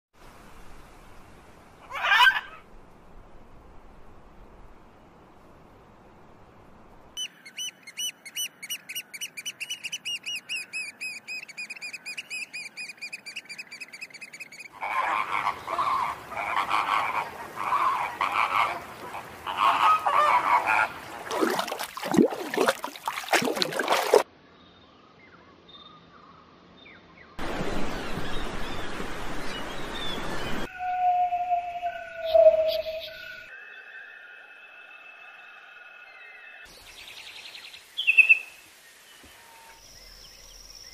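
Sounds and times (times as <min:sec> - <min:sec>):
high repeated bird calls: 0:07.2 - 0:16.0, 0:30.6 - 0:33.9
flamingos honking: 0:14.7 - 0:21.9
waves rushing: 0:14.8 - 0:24.3, 0:27.4 - 0:30.7.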